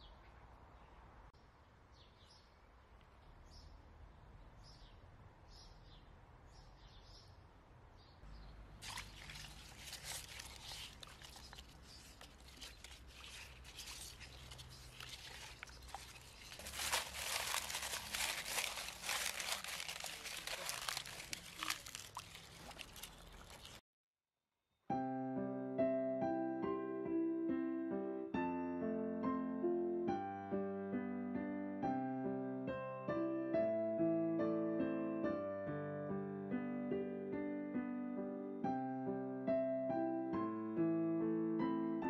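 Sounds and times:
hands splashing in water: 0:08.8 - 0:23.8
soft piano music: 0:14.7 - 0:22.0, 0:24.9 - 0:42.0.

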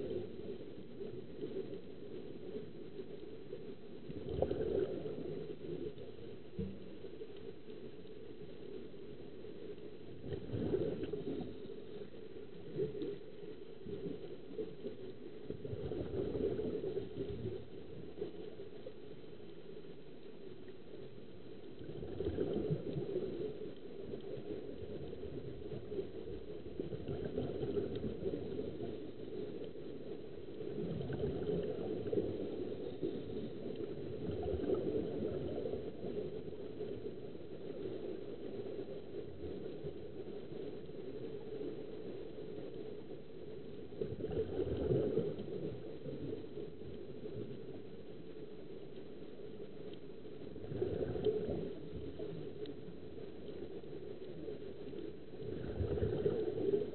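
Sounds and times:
low underwater rumble: 0:00.0 - 0:56.9
bubbling from diving helmets: 0:04.0 - 0:07.1, 0:10.1 - 0:18.9, 0:21.8 - 0:29.8, 0:30.5 - 0:41.5, 0:43.9 - 0:47.8, 0:50.5 - 0:53.6, 0:55.2 - 0:56.9.

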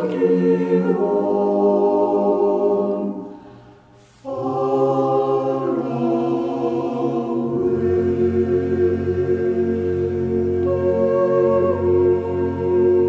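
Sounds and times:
slow choir-like chords: 0:00.0 - 0:13.0.

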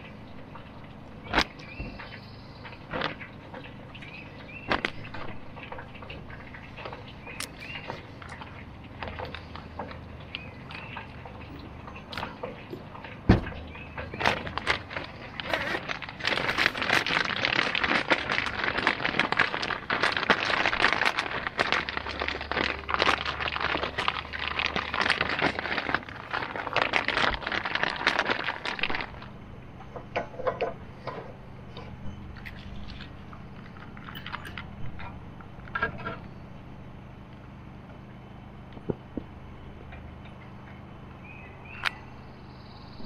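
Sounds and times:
plastic bag crinkling: 0:06.7 - 0:12.5, 0:13.4 - 0:29.4, 0:32.3 - 0:35.0.

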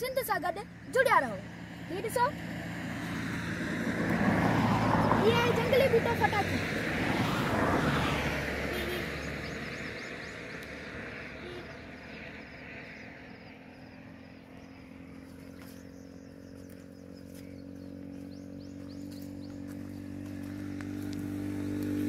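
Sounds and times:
engine hum: 0:00.0 - 0:22.0
small birds chirping: 0:08.8 - 0:22.0.

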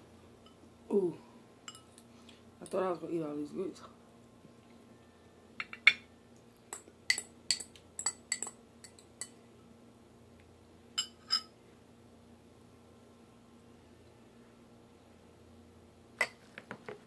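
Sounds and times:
utensil clinking against glass: 0:06.7 - 0:09.3.

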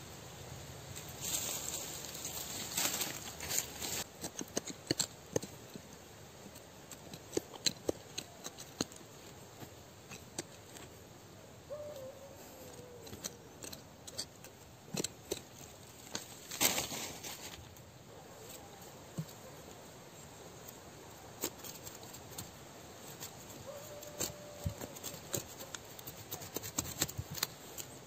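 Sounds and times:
fingers scraping soil and leaves: 0:00.9 - 0:11.1, 0:11.8 - 0:19.8, 0:20.6 - 0:28.0.

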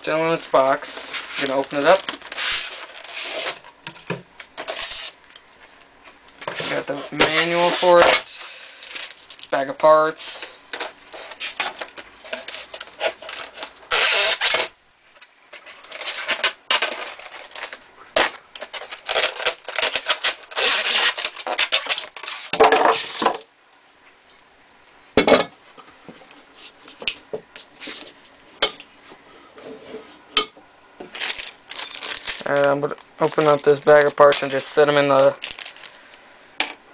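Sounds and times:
styrofoam rubbing and scraping: 0:00.8 - 0:03.6, 0:04.6 - 0:05.2, 0:06.4 - 0:09.2, 0:10.2 - 0:14.8, 0:15.5 - 0:23.4.

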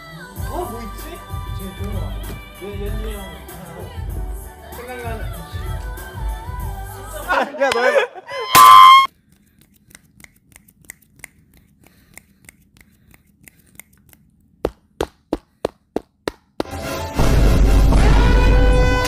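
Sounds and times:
person squealing: 0:08.2 - 0:09.1.

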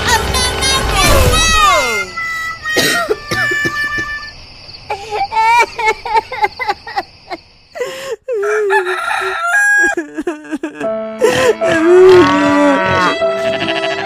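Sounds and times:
background music: 0:00.0 - 0:03.0, 0:10.6 - 0:14.0
rooster crowing: 0:08.3 - 0:10.0.

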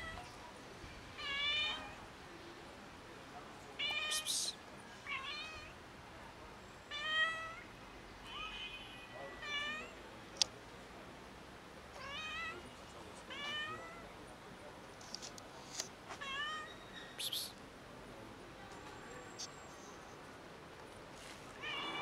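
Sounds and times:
cats meowing: 0:21.6 - 0:22.0.

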